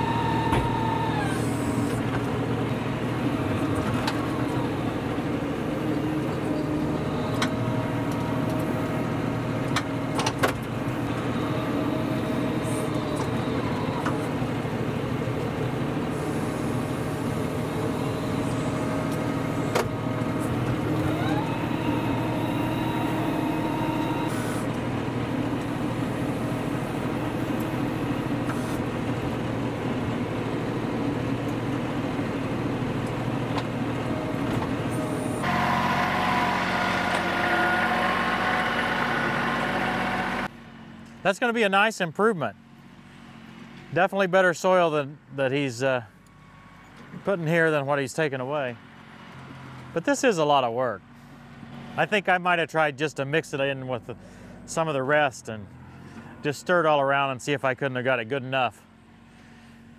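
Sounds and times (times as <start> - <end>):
tractor diesel engine under load: 0.0 - 59.9
rising whine: 16.1 - 24.7.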